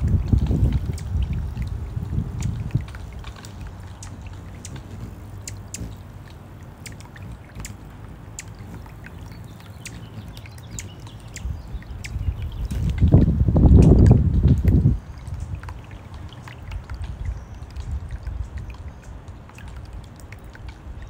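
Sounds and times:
fountain water trickling and gurgling: 0.0s - 21.0s
water drips and splashes: 0.0s - 21.0s.

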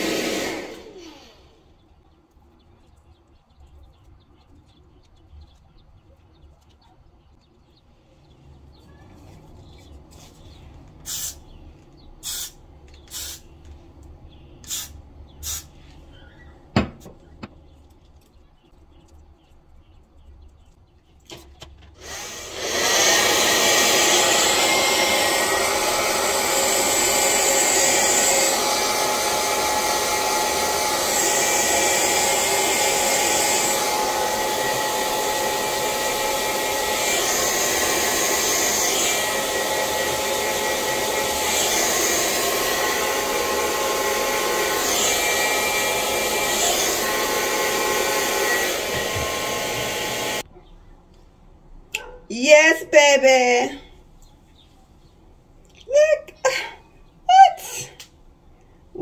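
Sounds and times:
hair dryer running: 0.0s - 1.6s, 22.0s - 50.4s
aerosol spray spritzes: 11.1s - 11.4s, 12.2s - 13.5s, 14.6s - 15.8s.

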